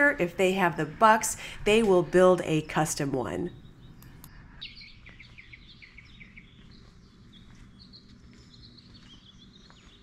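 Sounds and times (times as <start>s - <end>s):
faint birds chirping: 0.0s - 10.0s
low outdoor background hum: 0.0s - 10.0s.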